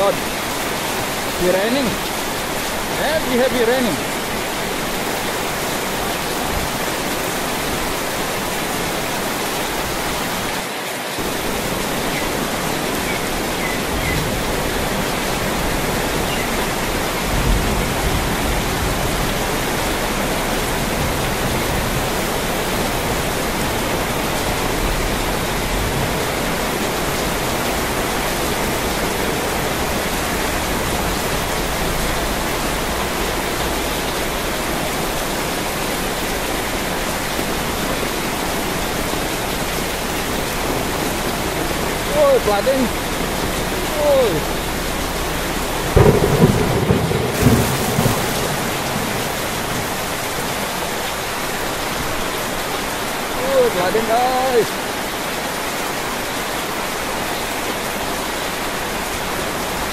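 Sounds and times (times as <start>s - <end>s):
heavy rain on pavement: 0.0s - 59.9s
low rumble: 42.9s - 51.0s.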